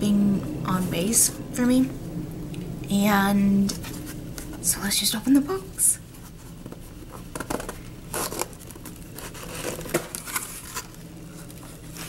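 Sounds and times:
box packaging tearing and crinkling: 7.4s - 12.0s.

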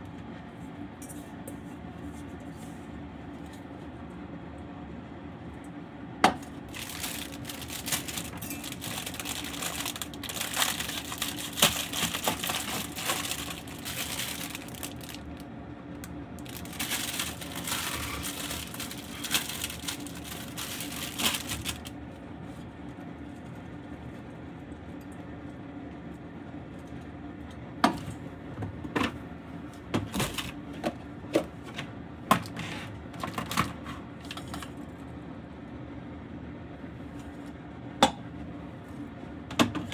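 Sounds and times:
steady low hum: 0.0s - 39.9s
plastic packaging crinkling: 6.7s - 22.0s.

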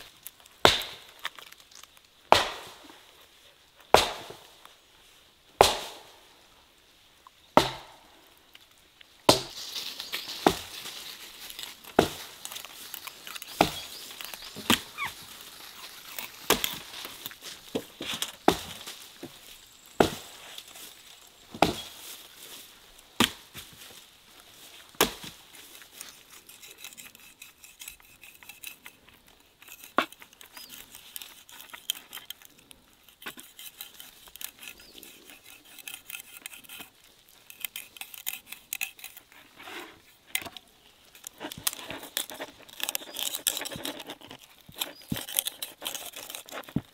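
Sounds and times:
knife scraping fish: 26.1s - 40.0s, 41.2s - 46.8s.

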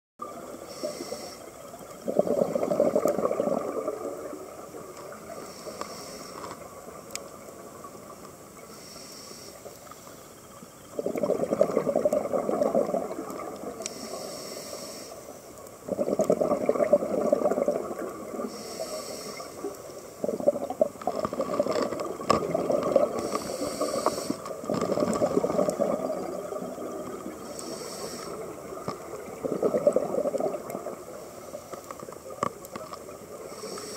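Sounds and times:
exhaled bubbles gurgling: 0.2s - 8.8s, 10.4s - 33.9s
regulator hissing inhalations: 0.6s - 1.6s, 5.3s - 6.6s, 8.7s - 10.3s, 13.8s - 15.4s, 18.4s - 20.3s, 23.1s - 24.7s, 27.4s - 28.6s, 33.4s - 33.9s.

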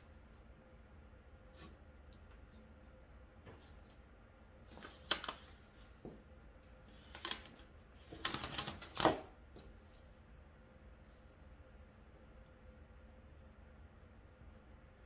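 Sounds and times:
paper rustling: 4.7s - 5.6s, 6.9s - 9.2s.

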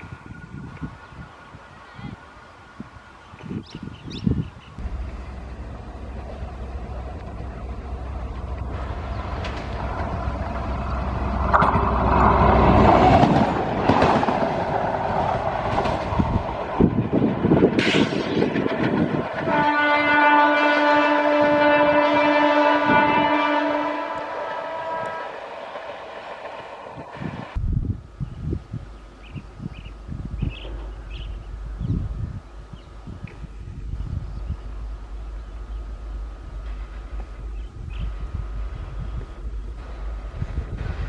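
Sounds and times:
rail car engine rumble: 0.0s - 41.0s
wheels clattering over rail joints: 4.8s - 19.4s
multi-tone train horn: 19.3s - 25.9s.

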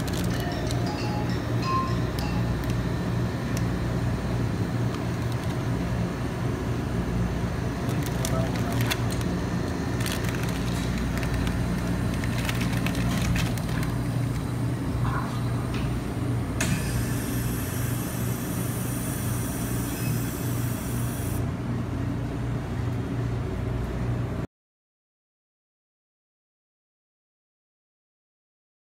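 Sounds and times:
low machine hum: 0.0s - 24.5s
hiss: 16.6s - 21.4s.

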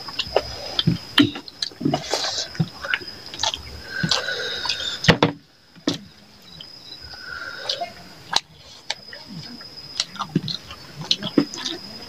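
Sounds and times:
fingers squelching food: 0.0s - 5.1s, 5.9s - 12.0s
lip smacks: 0.0s - 5.1s, 5.8s - 12.0s
wet chewing: 0.0s - 12.0s.

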